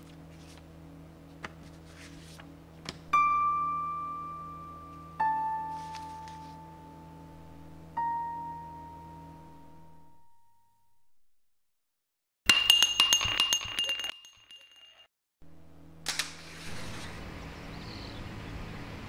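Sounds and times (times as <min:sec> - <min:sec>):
sharp clinking with ringing tone: 0:12.5 - 0:15.1.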